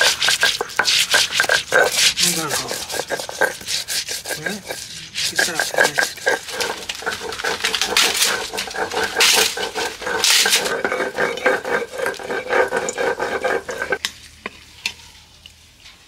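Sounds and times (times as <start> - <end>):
stone roller grinding on slab: 0.0 - 14.0.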